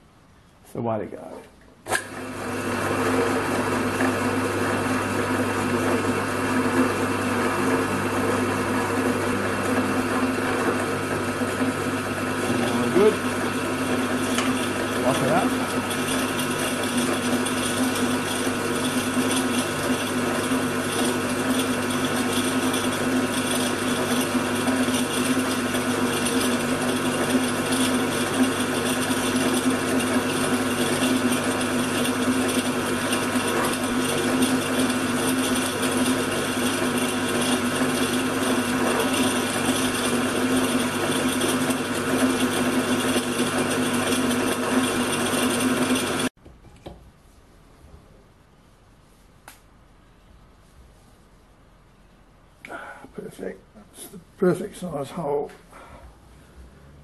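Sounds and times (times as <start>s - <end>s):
drill press motor hum: 1.9s - 47.0s.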